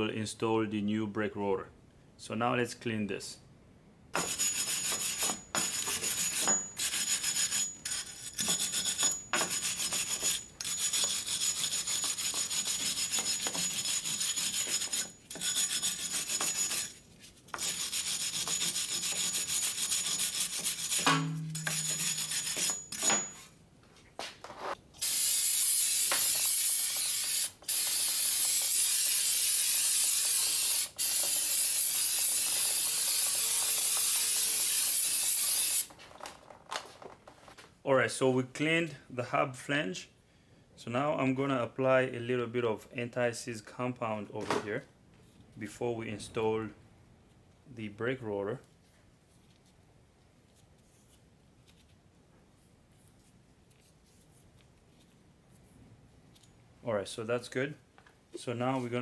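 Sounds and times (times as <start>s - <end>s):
wire brush scrubbing metal: 4.2s - 23.4s.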